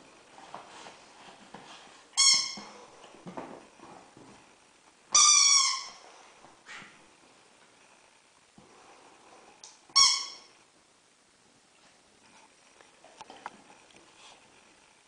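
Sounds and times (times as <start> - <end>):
rubber squeaky toy squeaking: 2.2 - 2.8, 5.1 - 6.0, 9.9 - 10.5.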